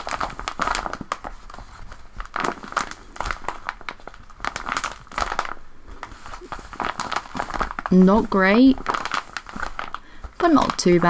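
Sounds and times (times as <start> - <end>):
paper squishy crinkling when squeezed: 0.0 - 11.0.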